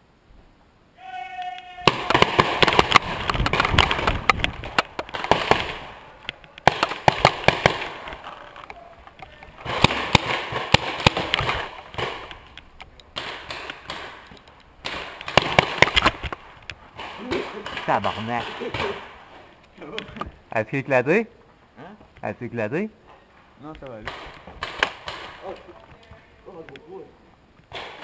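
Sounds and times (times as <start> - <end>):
paintball markers firing: 1.9 - 19.1, 23.8 - 25.7
paintballs smacking wood: 1.9 - 19.2, 23.8 - 25.6.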